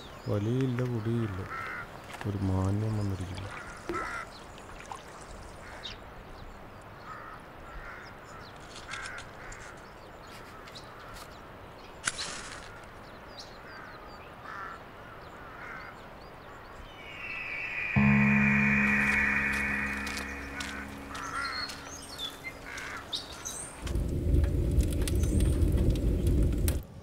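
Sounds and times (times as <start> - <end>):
crows cawing: 1.4 - 1.9, 14.4 - 15.9.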